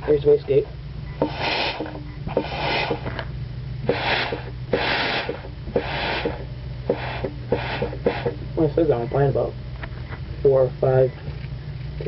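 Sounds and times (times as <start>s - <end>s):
steady low hum: 0.0s - 12.0s
air blow gun hissing: 1.2s - 3.2s, 3.8s - 8.4s.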